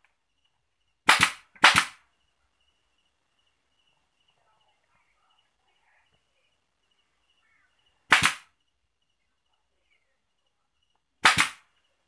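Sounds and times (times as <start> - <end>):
air stapler firing: 1.1 - 2.0, 8.1 - 8.4, 11.2 - 11.6.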